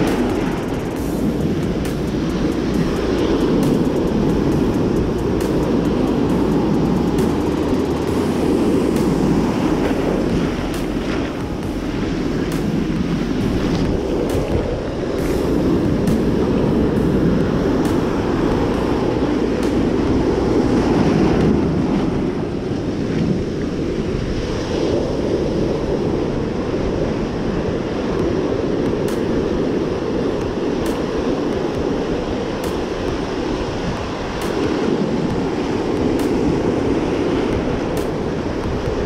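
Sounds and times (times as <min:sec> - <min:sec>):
ocean surf washing: 0:00.0 - 0:39.0
wind buffeting microphone: 0:00.0 - 0:39.0.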